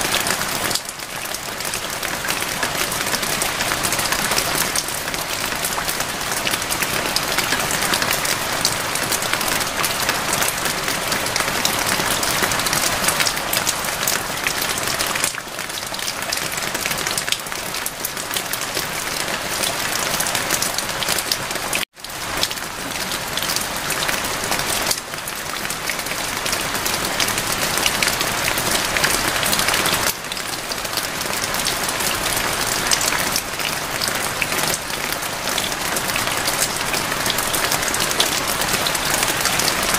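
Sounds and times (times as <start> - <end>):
steady rain falling: 0.0 - 39.9.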